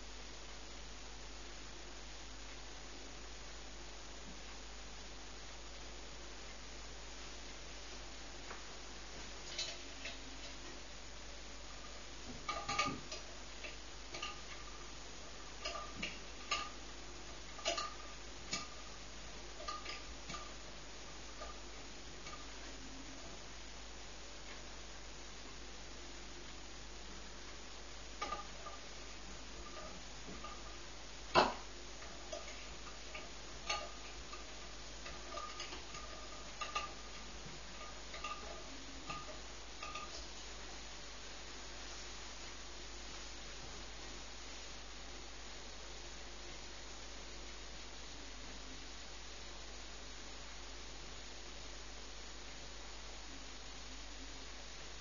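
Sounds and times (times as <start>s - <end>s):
faint steady hiss: 0.0s - 55.0s
pressure lamp ticking and popping: 8.4s - 10.9s, 11.6s - 23.5s, 27.4s - 40.8s.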